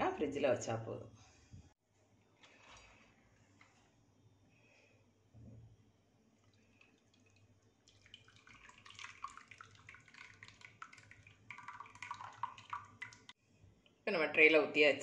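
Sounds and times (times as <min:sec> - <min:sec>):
thick mixture splattering and plopping: 0:06.7 - 0:13.4.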